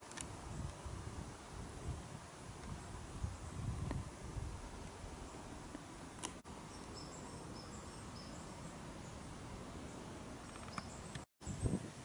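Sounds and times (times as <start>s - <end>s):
distant small birds chirping: 2.6s - 11.8s.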